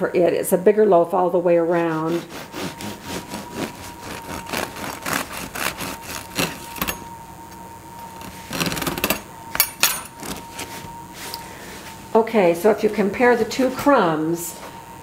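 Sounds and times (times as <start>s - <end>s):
bread knife sawing bread: 1.8s - 6.9s.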